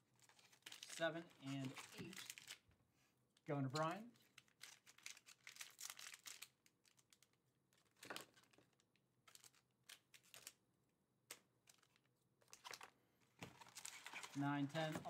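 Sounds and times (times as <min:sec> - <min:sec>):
foil packs crinkling: 0:00.2 - 0:02.6, 0:03.8 - 0:10.6, 0:13.5 - 0:15.0.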